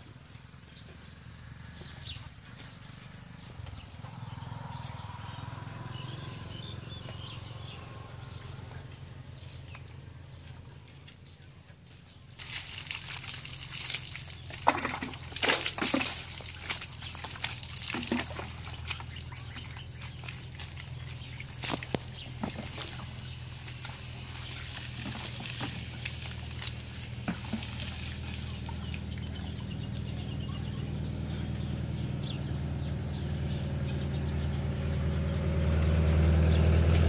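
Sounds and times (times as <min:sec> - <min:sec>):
low steady hum: 0:00.0 - 0:37.0
water splashing over cow: 0:12.4 - 0:37.0.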